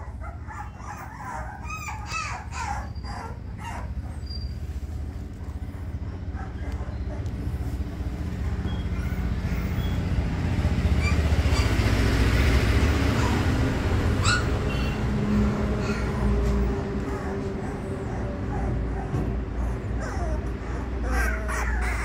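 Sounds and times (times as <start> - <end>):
puppy squeaking: 0.0 - 10.2, 10.9 - 11.8, 14.1 - 15.1, 17.1 - 22.0.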